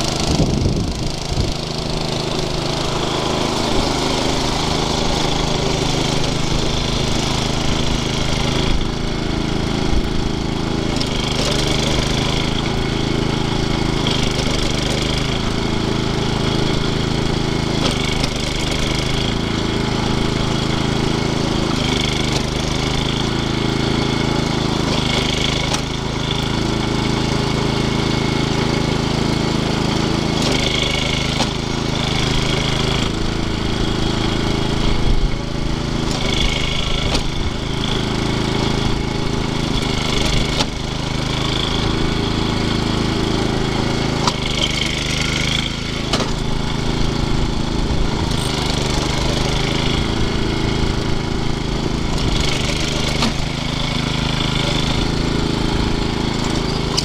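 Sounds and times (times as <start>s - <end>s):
riding lawn mower engine running: 0.0s - 57.0s.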